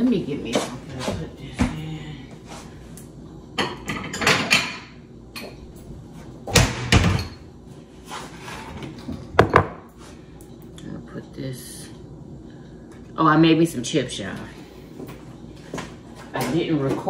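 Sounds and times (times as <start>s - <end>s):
dishes clattering: 3.6s - 5.6s, 6.6s - 7.5s, 8.7s - 9.9s.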